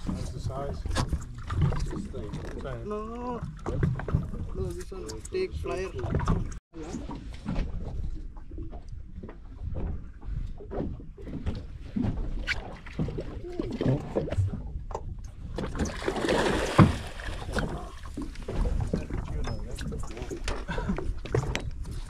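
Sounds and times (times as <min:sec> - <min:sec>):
fish splashing in water: 0:15.7 - 0:19.3.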